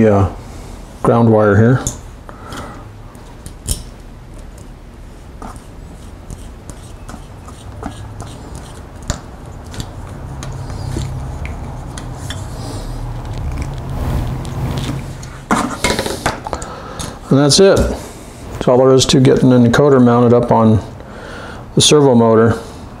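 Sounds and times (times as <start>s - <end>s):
screwdriver metallic clicks and scrapes: 6.3s - 12.6s.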